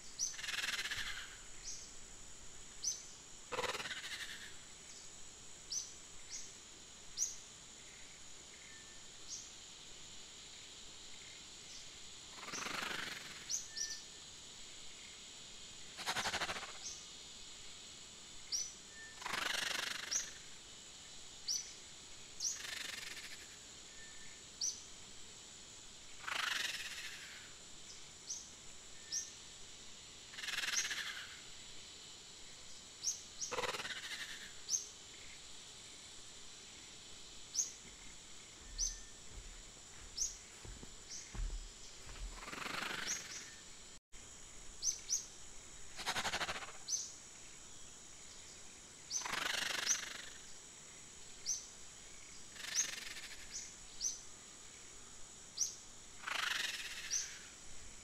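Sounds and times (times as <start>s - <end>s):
bird chirps: 37.5s - 43.6s.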